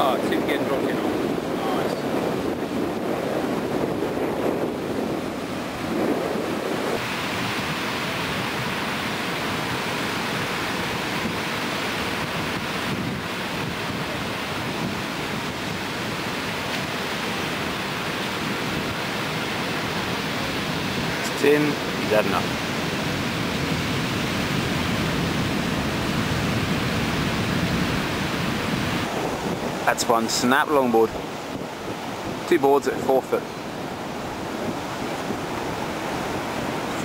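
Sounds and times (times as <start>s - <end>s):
ocean surf breaking: 0.0s - 37.0s
wind buffeting microphone: 0.0s - 37.0s.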